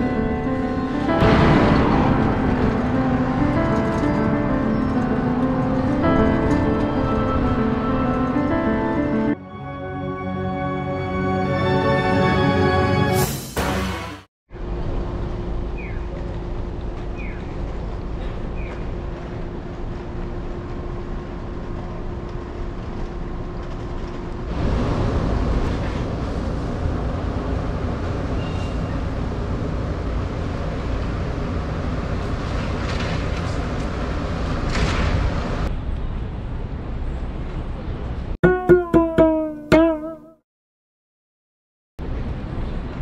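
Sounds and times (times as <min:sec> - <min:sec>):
traffic noise: 0:14.5 - 0:38.4, 0:42.0 - 0:43.0.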